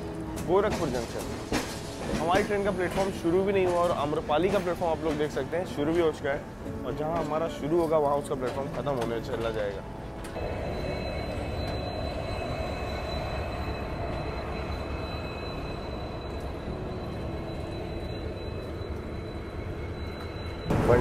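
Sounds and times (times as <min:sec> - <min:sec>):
train wheels rumbling on rails: 0:00.0 - 0:06.3, 0:06.9 - 0:21.0
thin high whine: 0:10.3 - 0:21.0.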